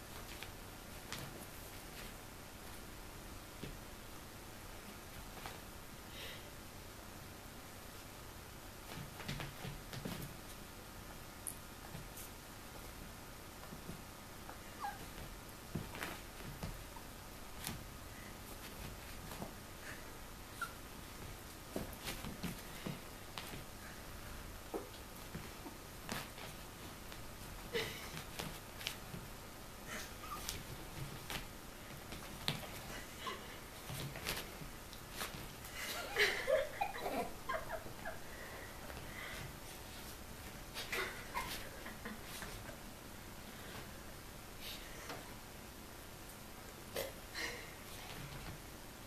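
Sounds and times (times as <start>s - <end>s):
paws thumping on a rug: 8.9s - 10.6s, 12.9s - 19.6s, 20.9s - 23.8s, 24.4s - 29.4s, 30.2s - 33.1s, 33.7s - 35.8s
person giggling: 27.7s - 28.3s, 35.8s - 38.6s, 40.8s - 42.8s.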